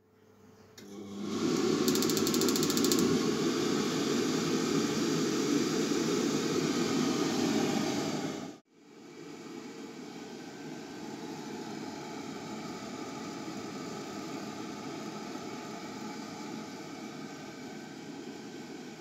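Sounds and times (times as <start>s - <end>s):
boiler fan and burner rushing: 0.8s - 19.0s
ignition spark clicks: 1.9s - 3.1s.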